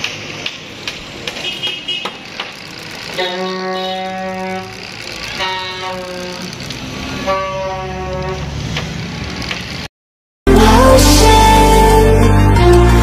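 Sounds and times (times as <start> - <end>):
traffic noise: 0.0 - 9.9
vehicle horns honking: 1.4 - 2.2, 3.1 - 8.5.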